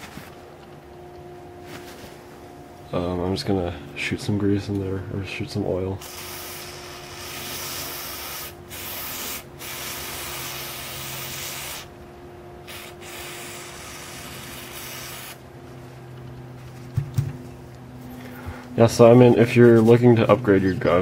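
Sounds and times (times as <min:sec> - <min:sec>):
aerosol spray hissing: 0:06.0 - 0:11.9, 0:12.7 - 0:15.4.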